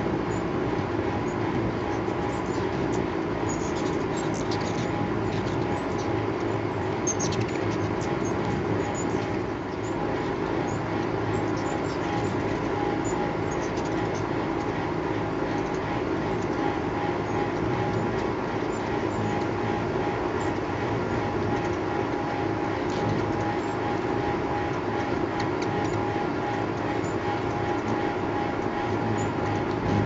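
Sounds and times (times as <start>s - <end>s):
hummingbird wings humming: 0.0s - 30.0s.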